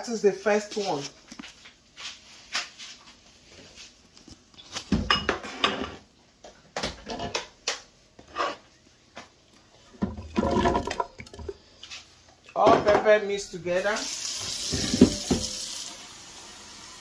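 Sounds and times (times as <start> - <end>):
dishes clattering: 5.0 - 6.0, 10.0 - 11.6, 12.5 - 13.1, 14.7 - 15.6.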